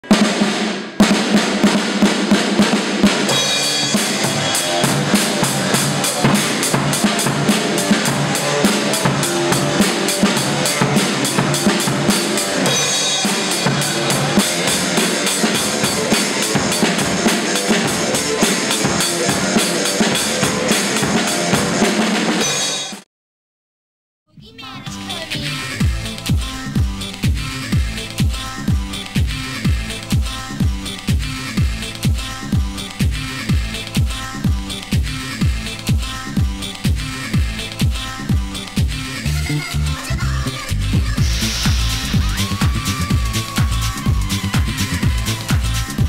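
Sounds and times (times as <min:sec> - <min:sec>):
fast rock drumming: 0:00.0 - 0:23.0, 0:24.9 - 0:46.0
electric guitar: 0:02.7 - 0:22.6.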